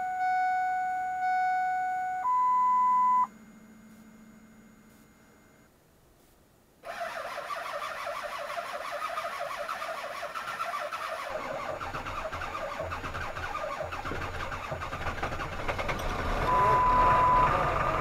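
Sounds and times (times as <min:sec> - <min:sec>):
starter cranking engine: 0:06.9 - 0:18.0
diesel engine running: 0:11.3 - 0:18.0.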